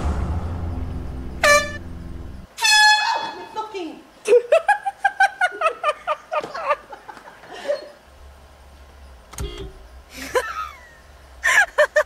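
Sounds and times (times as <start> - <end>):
woman laughing: 4.3 - 8.0, 10.1 - 12.0.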